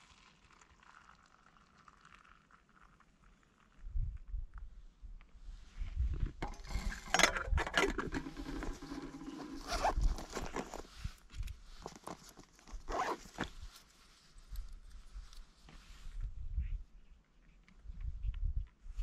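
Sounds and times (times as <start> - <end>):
backpack zipper pulled: 7.8 - 10.9, 12.8 - 13.5
fabric rustling: 8.3 - 14.4.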